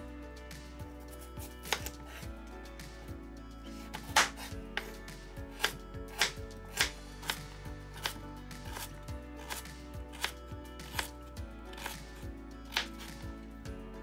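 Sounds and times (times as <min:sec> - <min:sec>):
soft background music: 0:00.0 - 0:14.0
knife chopping food: 0:01.6 - 0:02.2, 0:03.8 - 0:11.1, 0:11.7 - 0:13.2.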